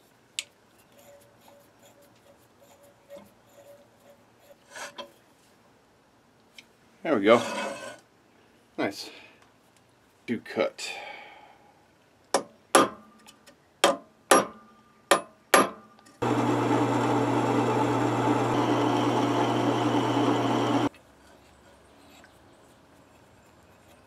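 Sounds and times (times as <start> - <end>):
hammer striking metal punch: 13.8 - 15.9
drill press humming: 16.2 - 20.9.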